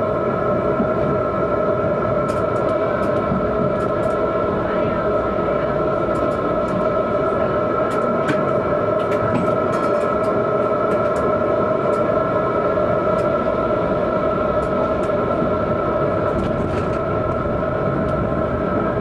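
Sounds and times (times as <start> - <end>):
tram rumbling along track: 0.0 - 19.0.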